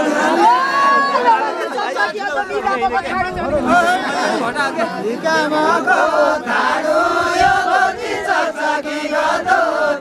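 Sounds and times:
group singing folk song: 5.0s - 10.0s.

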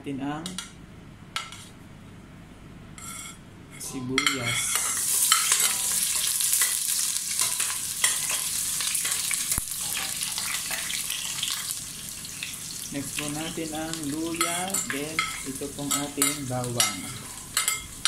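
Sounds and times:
onions sizzling in oil: 4.4s - 18.0s.

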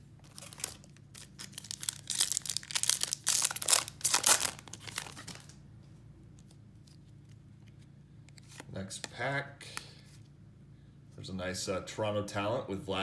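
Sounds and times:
foil wrapper tearing and crinkling: 0.2s - 5.5s.

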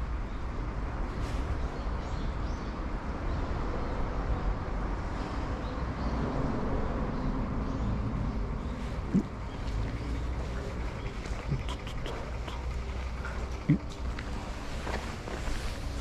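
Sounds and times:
traffic rumbling on bridge: 0.0s - 16.0s.

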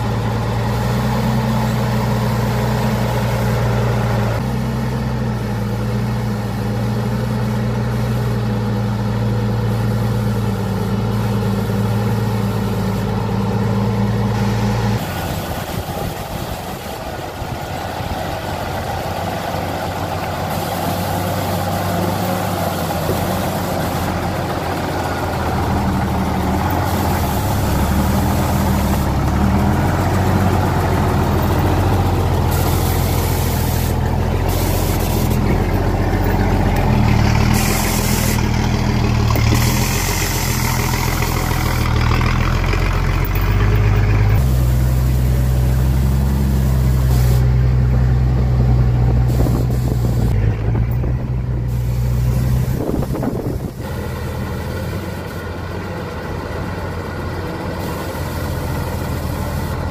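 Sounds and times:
truck engine running: 0.0s - 59.9s.

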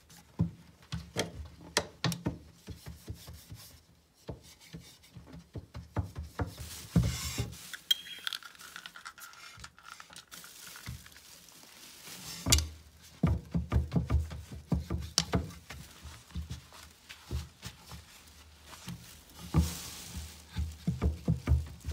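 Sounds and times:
glassy clinks: 7.9s - 8.4s
knocking on wooden enclosure: 13.2s - 15.6s, 20.7s - 21.9s.

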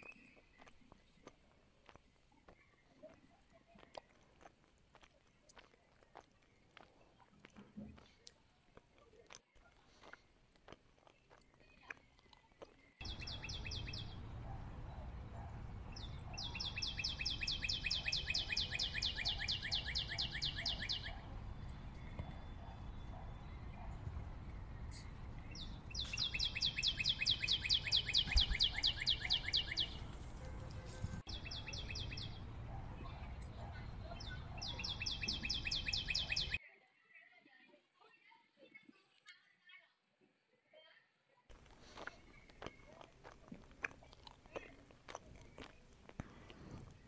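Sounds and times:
monkeys chewing: 0.0s - 13.3s, 41.5s - 47.0s.

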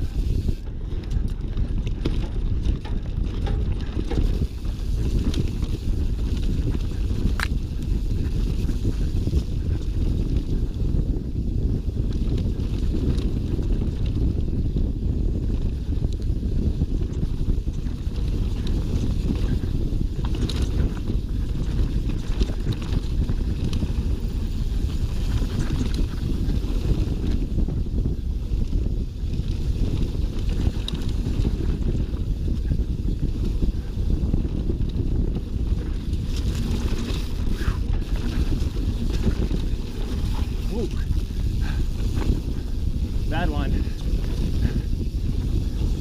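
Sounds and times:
bike clicks and rattles: 0.0s - 46.0s
bike tyres rumbling on dirt: 0.0s - 46.0s
wind buffeting microphone: 0.0s - 46.0s.

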